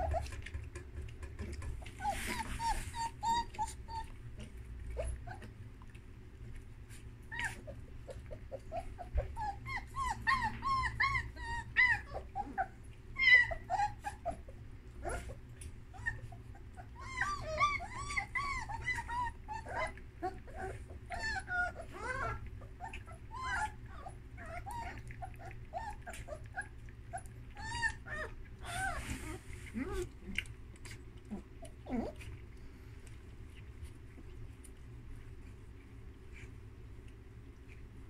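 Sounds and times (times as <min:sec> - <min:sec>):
puppies whimpering and yipping: 0:00.0 - 0:00.8, 0:01.5 - 0:05.6, 0:06.9 - 0:30.4, 0:31.0 - 0:32.4.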